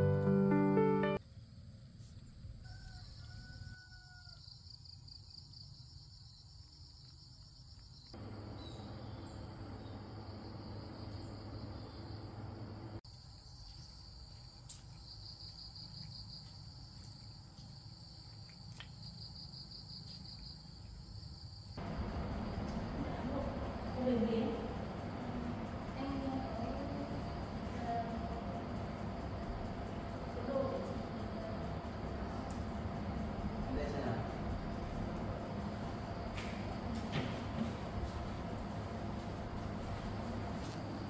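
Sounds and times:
insects chirping: 0:00.0 - 0:41.0
low outdoor hum: 0:00.0 - 0:41.0.

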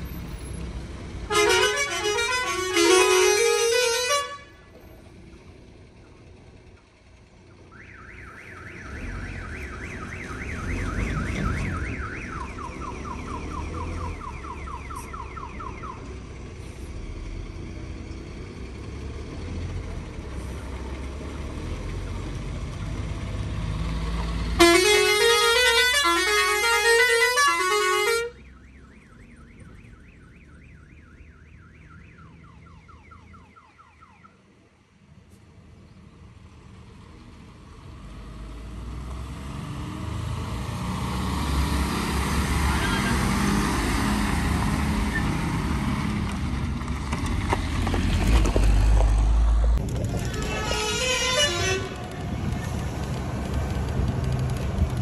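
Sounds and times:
heavy truck rumbling: 0:00.0 - 0:32.4, 0:34.8 - 0:55.0
multi-tone musical horn: 0:01.3 - 0:04.5, 0:24.6 - 0:28.4, 0:50.2 - 0:52.2.

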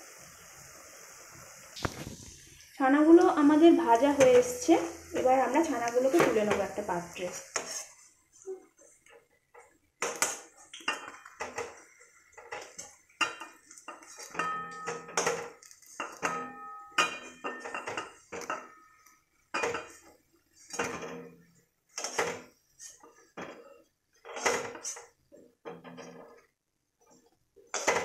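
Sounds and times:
metal spoon clinking and scraping pan: 0:05.9 - 0:08.1, 0:10.0 - 0:26.5, 0:27.7 - 0:28.0.

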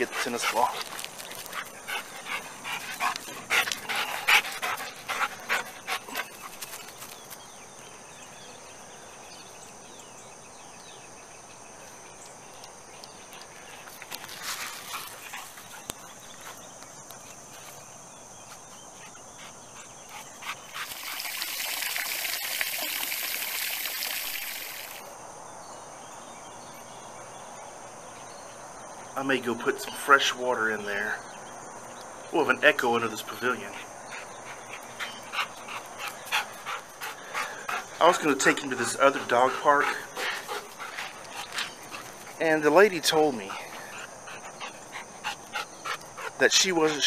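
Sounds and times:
dog panting: 0:00.0 - 0:07.0, 0:19.0 - 0:21.0, 0:33.7 - 0:47.0.

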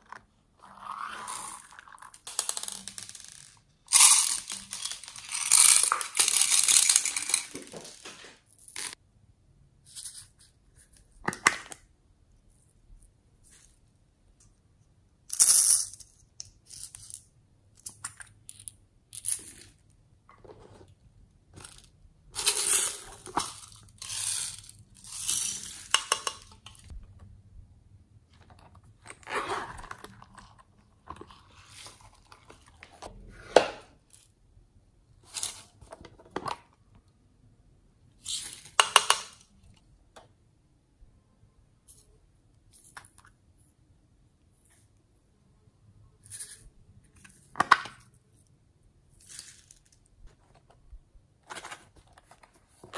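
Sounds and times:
plastic containers being handled: 0:49.2 - 0:52.9.

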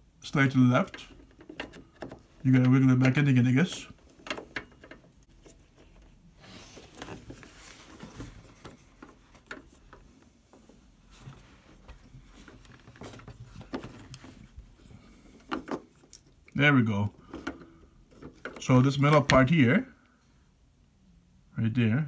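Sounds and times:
plastic scraping and clicking: 0:00.7 - 0:06.2, 0:06.8 - 0:10.7, 0:12.3 - 0:16.4, 0:17.1 - 0:19.6.

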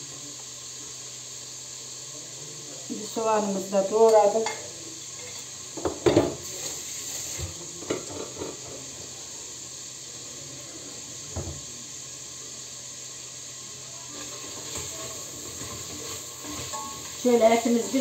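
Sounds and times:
meat sizzling in oil: 0:00.0 - 0:18.0
kitchenware knocks and clinks: 0:05.2 - 0:06.4.

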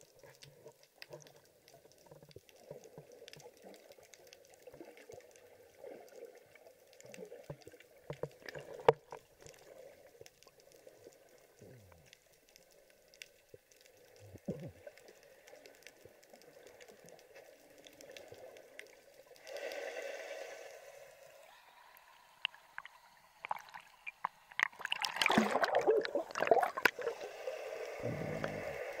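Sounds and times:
water splashing and sloshing: 0:00.0 - 0:11.7, 0:22.3 - 0:29.0
muffled underwater hush: 0:21.4 - 0:29.0
sharp underwater clicks: 0:22.4 - 0:27.1.

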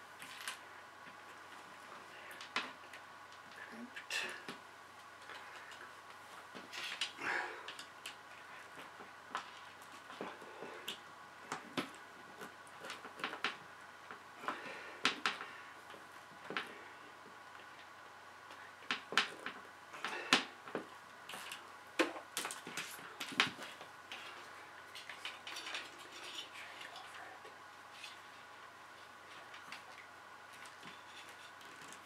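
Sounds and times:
wires being handled: 0:00.1 - 0:03.7, 0:17.5 - 0:32.0.

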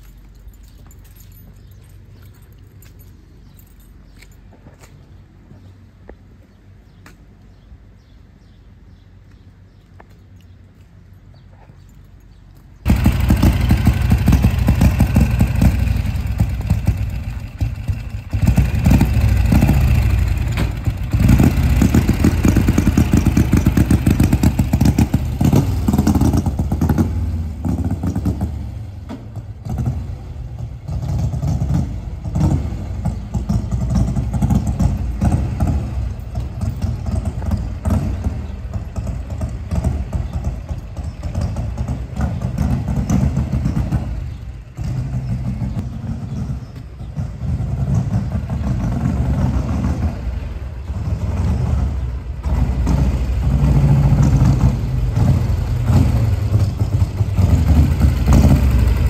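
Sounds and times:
motorcycle engine running: 0:12.8 - 0:59.0.

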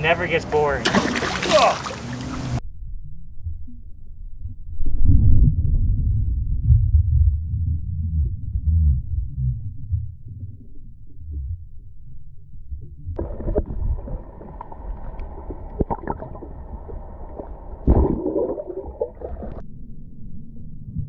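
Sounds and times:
loud splash: 0:00.8 - 0:02.6
water sloshing: 0:00.8 - 0:02.6
muffled underwater rumble: 0:02.0 - 0:21.0.

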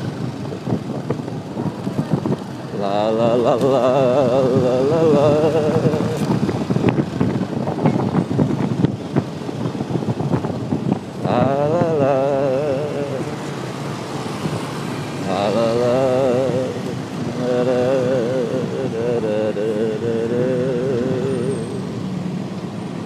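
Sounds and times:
motorcycle wind and road noise: 0:00.0 - 0:23.0
man singing held notes: 0:02.8 - 0:06.3, 0:11.2 - 0:13.7, 0:15.2 - 0:21.9.

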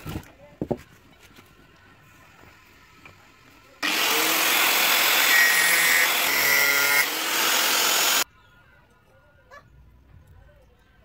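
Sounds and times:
angle grinder cutting steel: 0:03.8 - 0:08.2.

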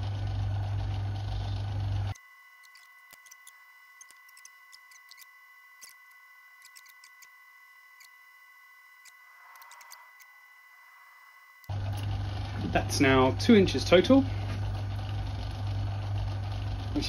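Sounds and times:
faint high-pitched hum: 0:01.0 - 0:14.8
crackling clicks: 0:02.1 - 0:07.4, 0:09.0 - 0:10.4.

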